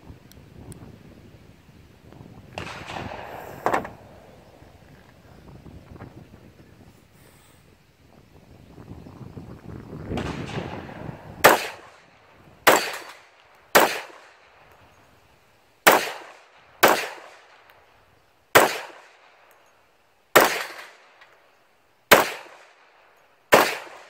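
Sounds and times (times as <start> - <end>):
pistol shots: 2.5 - 4.6, 10.1 - 14.7, 15.8 - 17.7, 18.5 - 19.4, 20.3 - 21.3, 22.1 - 24.0.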